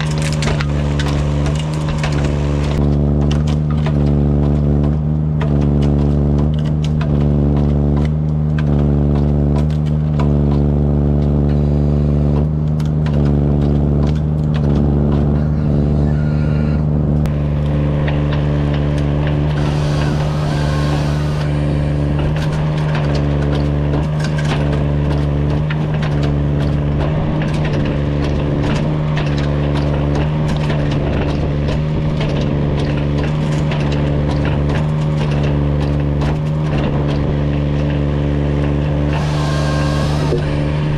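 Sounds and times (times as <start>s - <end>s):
knocks and cracks of delimbing: 0.0s - 16.0s
forwarder engine under hydraulic load: 0.0s - 40.9s.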